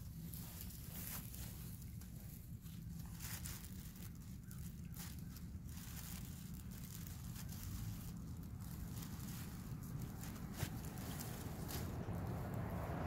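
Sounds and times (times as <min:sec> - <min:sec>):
kite sail rustling: 0:00.0 - 0:13.0
steady low rumble: 0:00.0 - 0:13.0.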